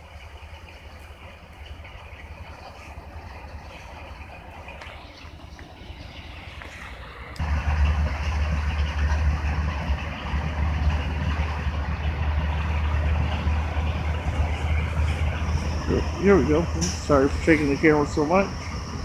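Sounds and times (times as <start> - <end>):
snowblower engine drone: 5.5 - 19.0
rushing noise: 6.1 - 19.0.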